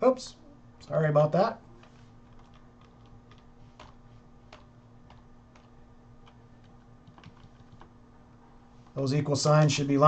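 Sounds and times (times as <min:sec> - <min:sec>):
low steady hum: 0:00.0 - 0:10.0
computer keyboard keystrokes: 0:01.8 - 0:07.9.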